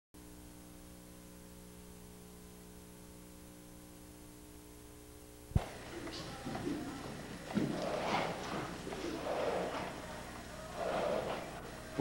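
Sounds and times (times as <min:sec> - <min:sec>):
electrical hum: 0:00.2 - 0:12.0.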